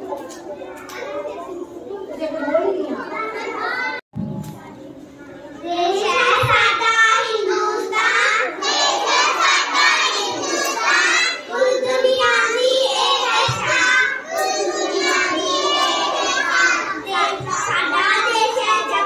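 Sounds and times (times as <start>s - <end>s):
girls sing-song voices: 5.7s - 19.0s.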